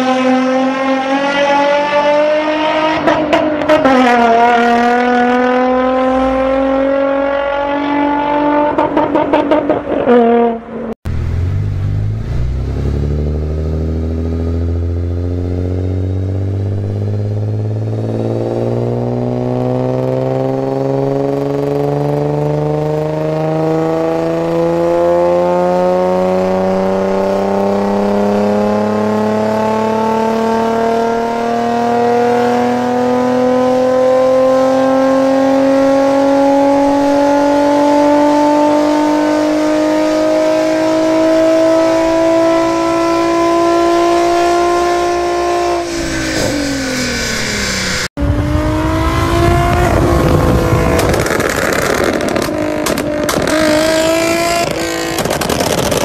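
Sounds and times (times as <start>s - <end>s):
car engine revving: 0.0s - 56.0s
exhaust crackling: 11.1s - 24.7s, 40.9s - 56.0s.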